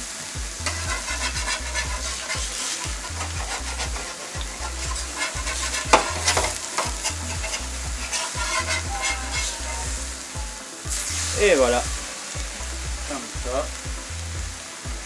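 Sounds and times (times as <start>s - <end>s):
burger patty sizzling on griddle: 0.0s - 15.0s
low bass beat: 0.0s - 15.0s
metal spatula scraping griddle: 0.6s - 10.0s.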